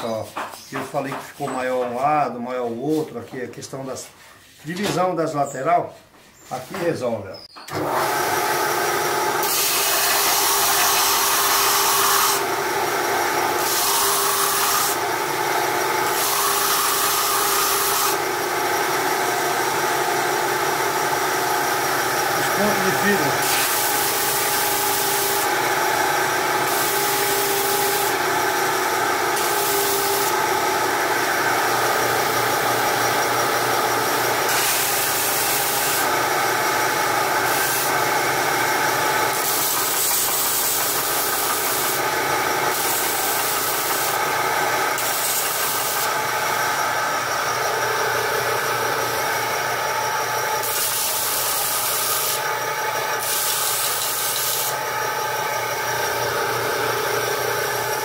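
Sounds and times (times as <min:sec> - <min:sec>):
belt sander motor running: 0:07.7 - 0:58.0
wood sanding hiss: 0:13.6 - 0:15.0, 0:22.3 - 0:25.6, 0:26.6 - 0:30.8, 0:34.4 - 0:36.1, 0:37.4 - 0:38.2, 0:39.3 - 0:42.1, 0:42.7 - 0:44.3, 0:45.0 - 0:46.2, 0:50.6 - 0:52.5, 0:53.2 - 0:54.8.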